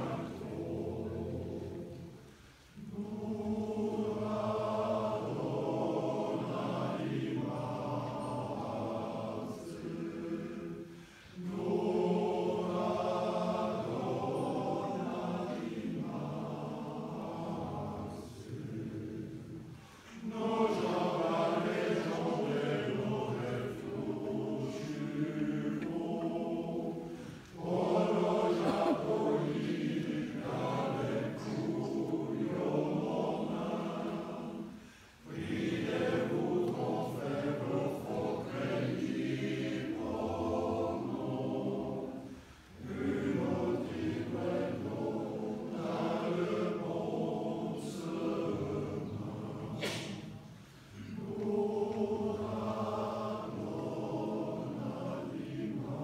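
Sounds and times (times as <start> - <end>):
mixed choir singing: 0.0 - 56.0.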